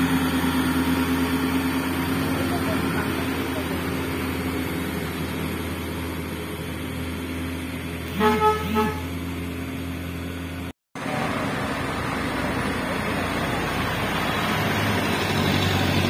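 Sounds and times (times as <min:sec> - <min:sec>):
truck diesel engine drone: 0:00.0 - 0:16.0
vehicle horn toots: 0:08.1 - 0:09.2.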